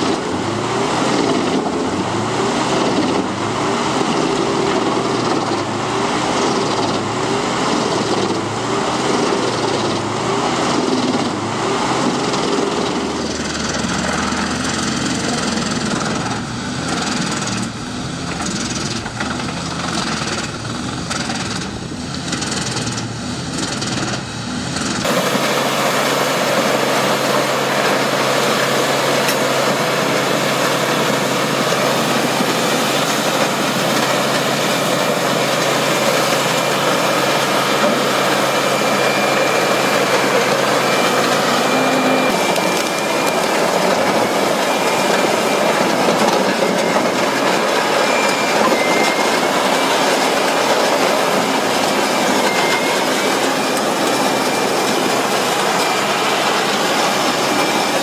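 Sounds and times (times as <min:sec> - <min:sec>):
horizontal grinder running: 0:25.0 - 0:58.0
wood chippers running: 0:25.0 - 0:58.0.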